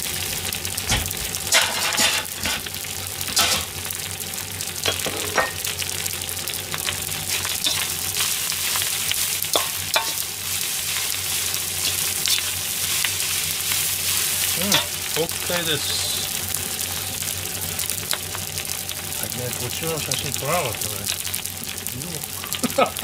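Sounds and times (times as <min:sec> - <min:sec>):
rice sizzling in a wok: 0:00.0 - 0:23.0
metal ladle scraping a pan: 0:01.5 - 0:02.7, 0:07.4 - 0:08.9, 0:09.5 - 0:10.3.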